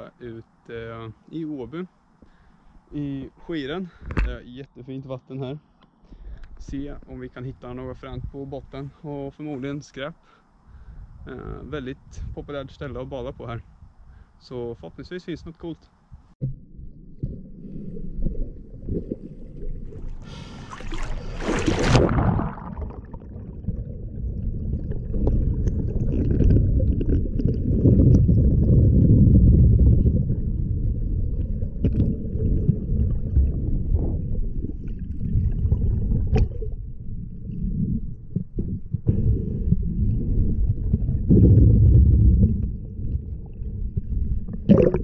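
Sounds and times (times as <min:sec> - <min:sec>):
muffled underwater rumble: 0:16.2 - 0:45.0
water splashing: 0:17.1 - 0:30.6.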